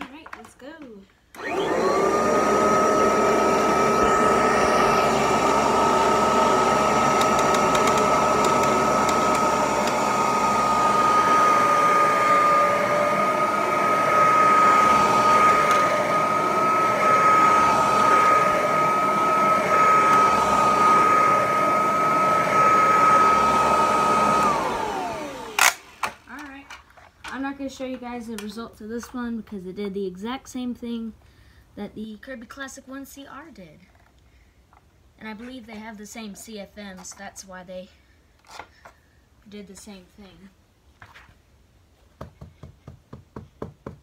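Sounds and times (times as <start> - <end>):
vacuum cleaner motor whine: 1.4 - 26.5.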